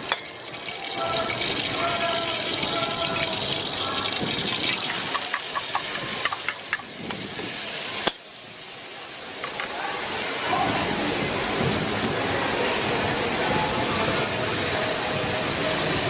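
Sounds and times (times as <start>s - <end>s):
food sizzling in a wok: 0.0s - 16.0s
utensils clicking against wok: 4.5s - 7.3s.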